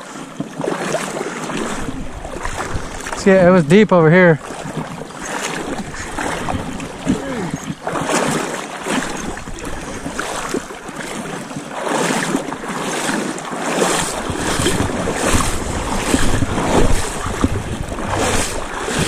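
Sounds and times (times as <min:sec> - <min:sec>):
legs wading through water: 0:00.0 - 0:19.0
wind buffeting microphone: 0:01.6 - 0:11.3, 0:13.9 - 0:19.0.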